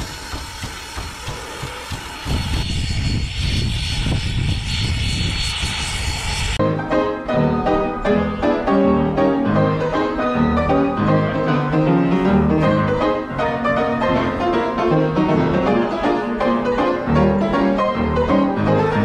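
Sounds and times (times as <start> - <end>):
upright piano playing chords: 6.6 - 19.0.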